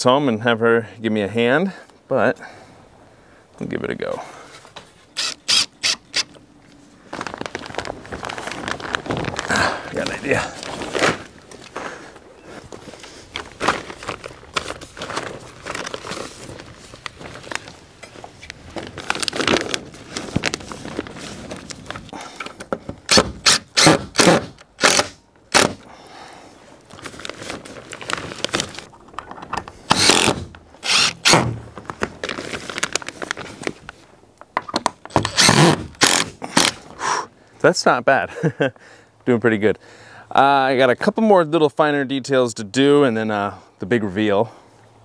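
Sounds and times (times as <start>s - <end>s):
cordless drill driving screws: 5.2s - 6.4s, 23.1s - 25.8s, 29.9s - 31.4s, 35.2s - 36.7s
plastic sheeting crinkling: 7.0s - 11.7s, 12.7s - 22.1s, 26.7s - 29.0s, 31.6s - 34.1s.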